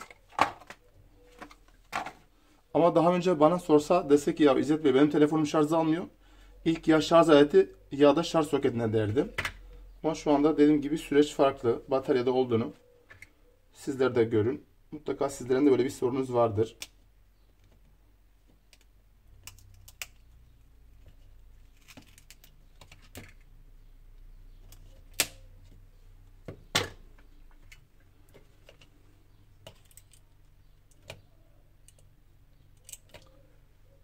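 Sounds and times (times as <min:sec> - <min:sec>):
smartphone parts clicking: 0:18.5 - 0:20.4, 0:26.6 - 0:33.4.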